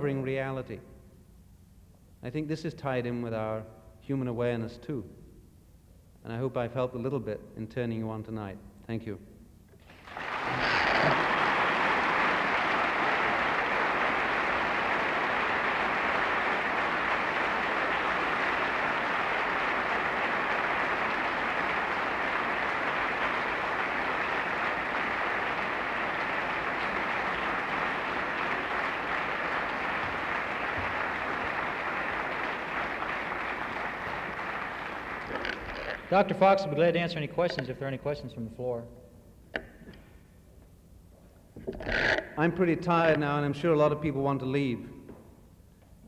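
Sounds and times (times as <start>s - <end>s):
audience applauding: 9.8s - 36.2s.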